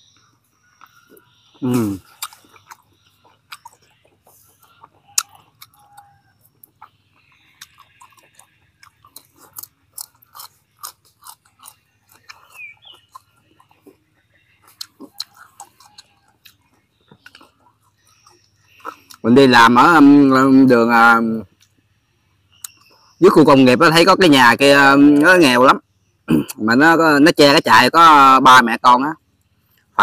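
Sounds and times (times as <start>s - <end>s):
person chewing moistly: 0.1s - 19.4s, 22.5s - 23.2s.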